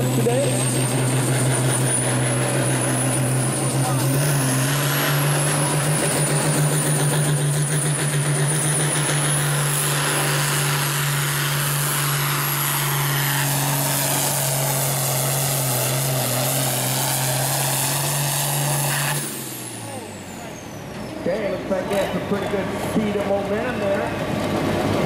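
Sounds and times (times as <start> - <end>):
tractor diesel engine under load: 0.0 - 25.0.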